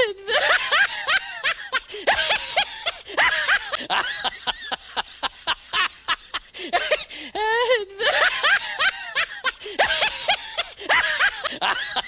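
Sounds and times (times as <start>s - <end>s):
person snickering and laughing: 0.0s - 12.0s.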